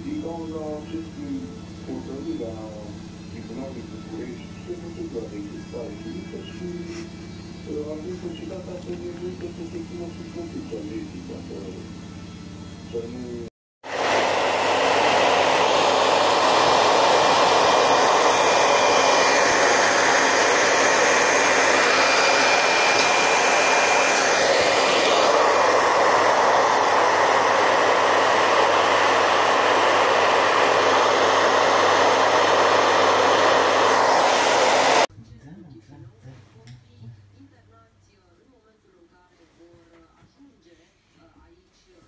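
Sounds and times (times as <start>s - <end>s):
hair dryer blowing: 13.1s - 35.1s.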